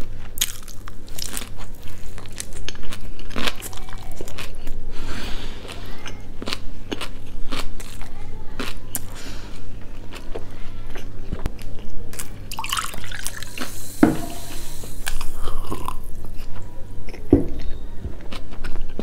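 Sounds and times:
close chewing with mouth clicks: 5.6s - 9.2s, 14.8s - 19.0s
slurping a drink: 12.6s - 16.0s.

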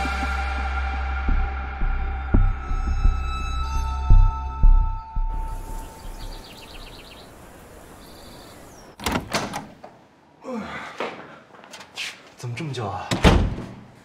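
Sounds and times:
door creaking: 9.0s - 10.0s.

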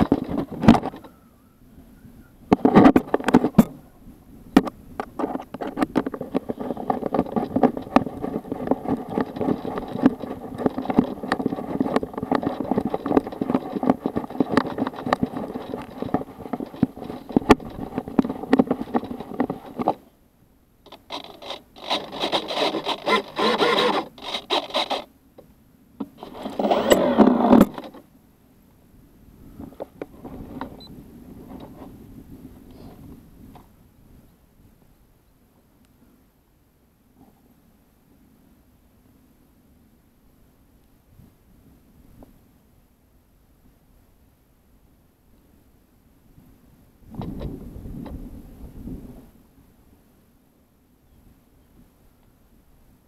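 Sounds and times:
small motor humming and rattling: 5.2s - 20.1s, 20.9s - 25.1s, 26.0s - 28.1s.

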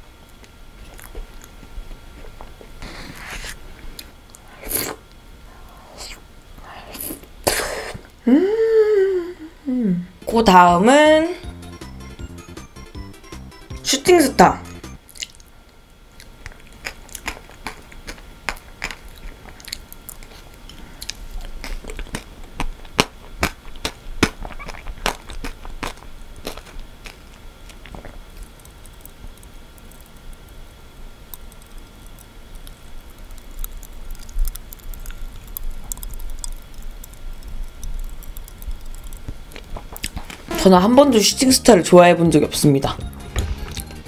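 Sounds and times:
chewing: 0.4s - 5.0s, 16.2s - 30.5s, 31.4s - 40.6s
popping candy crackling in mouth: 16.2s - 41.7s.

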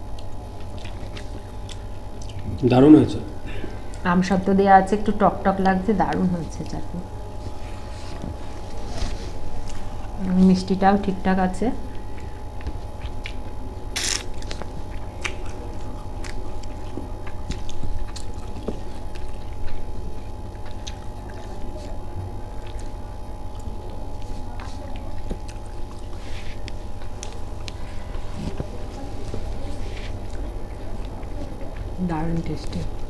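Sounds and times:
person chewing food: 0.0s - 2.7s, 11.9s - 32.0s
steady low hum: 0.0s - 33.0s.

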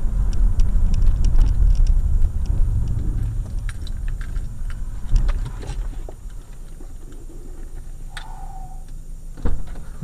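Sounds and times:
car driving on wet road: 0.0s - 6.2s.

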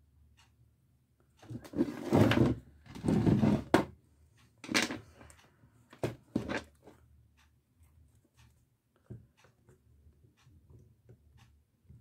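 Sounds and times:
cable scraping on a table: 1.5s - 3.9s.

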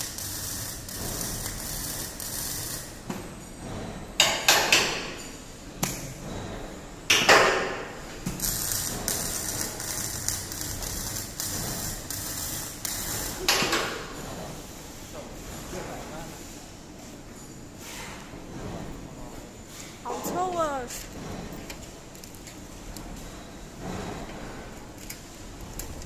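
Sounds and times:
metal clanks and knocks: 3.1s - 14.5s, 17.3s - 19.4s, 20.1s - 26.0s.

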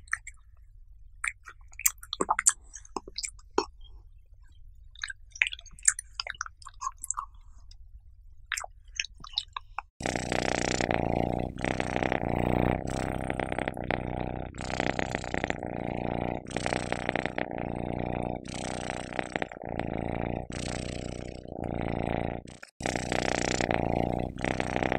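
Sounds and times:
cat purring: 10.0s - 24.9s.

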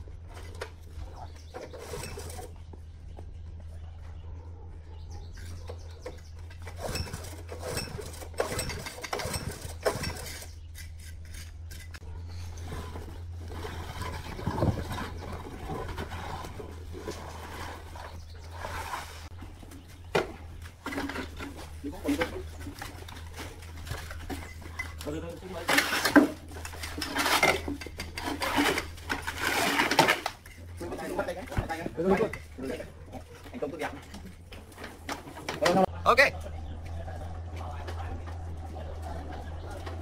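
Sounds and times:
metal clanks and knocks: 5.3s - 18.2s, 19.3s - 35.9s.

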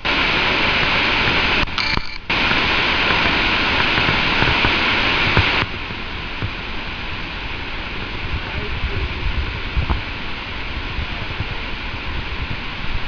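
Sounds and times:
roar of falling water: 0.0s - 13.0s.

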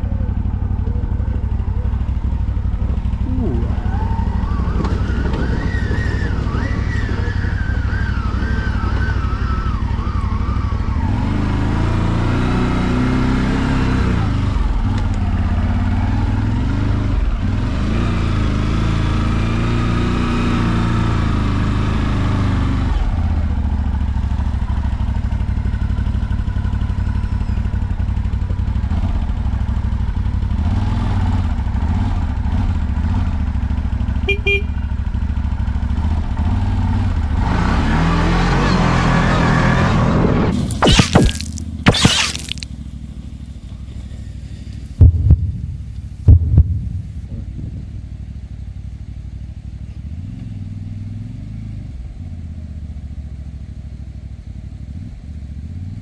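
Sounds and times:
quad bike engine revving: 0.0s - 24.8s, 30.5s - 33.4s, 35.9s - 42.8s.

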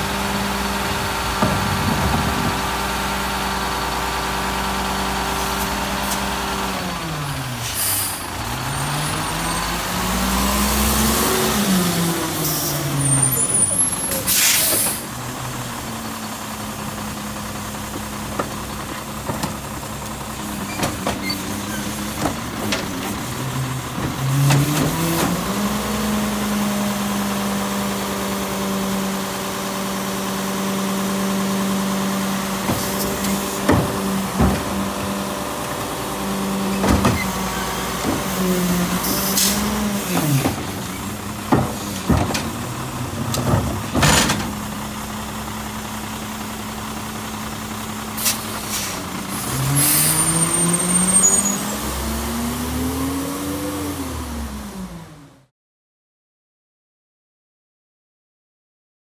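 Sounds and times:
garbage truck engine revving: 0.0s - 55.5s
loud bangs and clanks: 0.8s - 4.4s, 32.5s - 36.2s, 36.8s - 44.9s.

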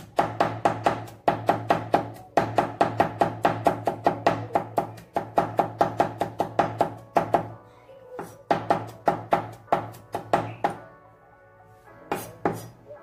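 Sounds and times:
cleaver chopping on wooden board: 0.0s - 7.5s.

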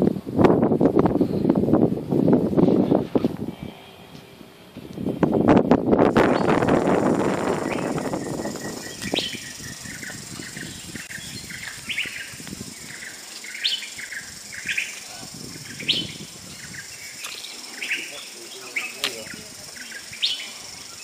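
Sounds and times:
birds chirping: 6.1s - 21.0s.

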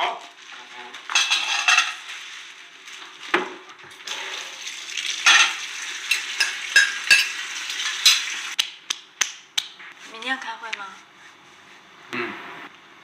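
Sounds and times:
dishes clinking: 1.1s - 2.0s, 5.2s - 8.4s
running tap water: 3.9s - 8.6s.

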